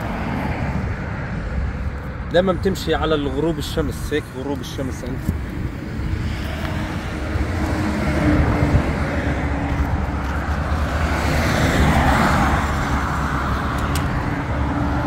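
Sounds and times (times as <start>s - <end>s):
steady low rumble: 0.0s - 11.2s
vehicles passing: 0.0s - 15.0s.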